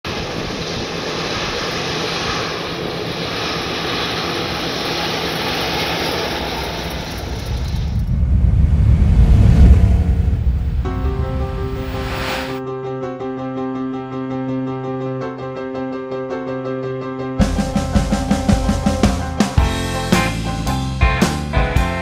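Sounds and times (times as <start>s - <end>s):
car engine driving past: 6.6s - 12.6s.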